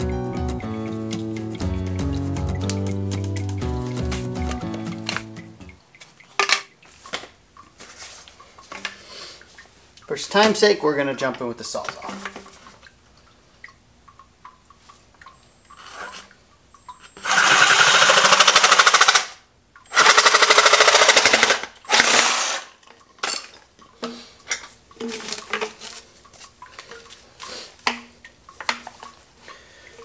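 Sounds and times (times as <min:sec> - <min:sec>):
reciprocating saw cutting plastic pipe: 0:17.2 - 0:22.8.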